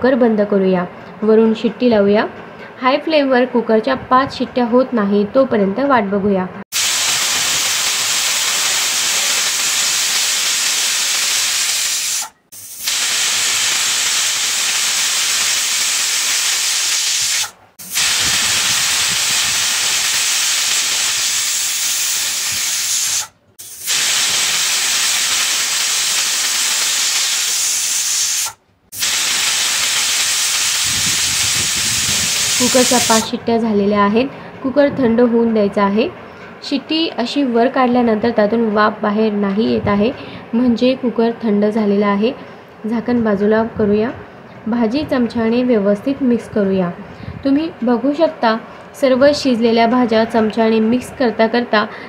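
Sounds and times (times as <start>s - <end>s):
pressure cooker whistling: 6.7s - 33.3s.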